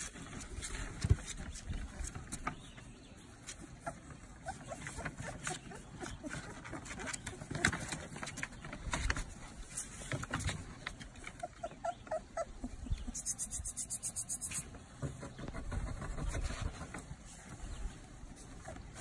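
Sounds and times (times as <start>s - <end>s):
puppies scrabbling on crinkling paper: 0.0s - 11.7s, 14.2s - 19.0s
puppies squeaking: 3.6s - 8.0s, 11.0s - 14.7s.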